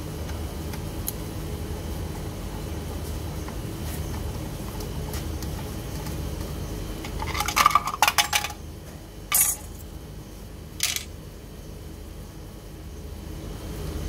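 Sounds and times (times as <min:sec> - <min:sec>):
metal screws clinking on paving: 0:09.3 - 0:09.8.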